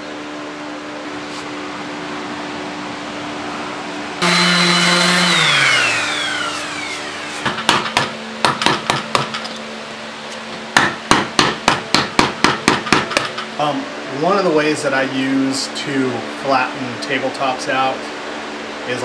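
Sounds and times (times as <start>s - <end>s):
steady hum: 0.0s - 19.0s
power tool spinning down: 4.2s - 7.4s
hammer striking wood: 7.4s - 9.4s, 10.8s - 13.3s.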